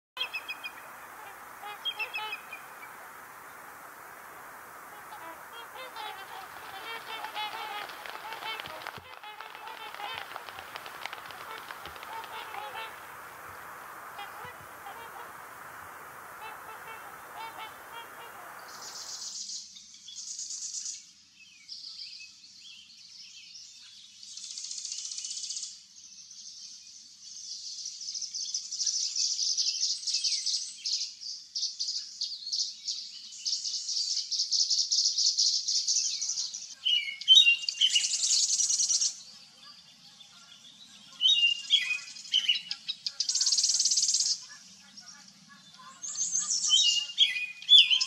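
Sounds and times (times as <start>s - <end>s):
waterfowl calling: 0.2s - 19.3s
songbirds twittering: 0.2s - 19.4s, 36.2s - 48.0s.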